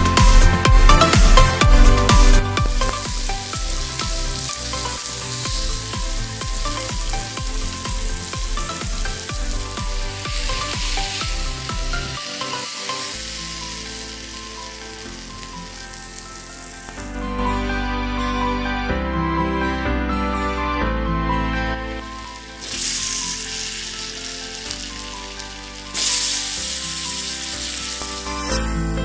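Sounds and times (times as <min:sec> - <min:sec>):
background music with beat: 0:00.0 - 0:17.8, 0:21.9 - 0:29.0
steaks sizzling in a pan: 0:00.9 - 0:17.0, 0:22.0 - 0:28.6.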